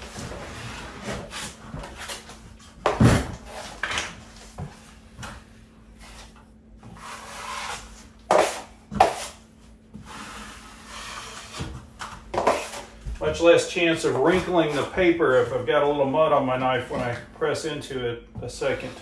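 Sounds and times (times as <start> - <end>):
taping knife scraping a mud pan: 6.8 - 9.4, 10.0 - 11.8.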